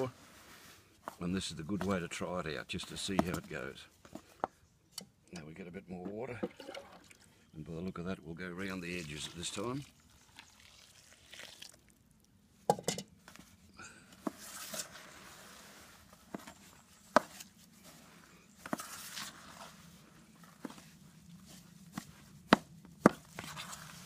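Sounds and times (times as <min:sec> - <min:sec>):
trowel scraping gritty mix: 0:14.3 - 0:15.8, 0:18.7 - 0:19.8, 0:23.1 - 0:24.0.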